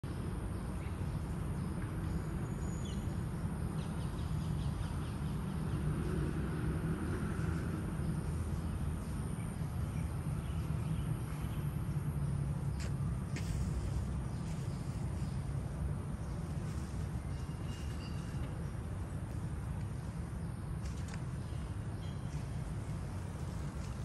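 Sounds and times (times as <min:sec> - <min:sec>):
steady low rumble: 0:04.7 - 0:24.0.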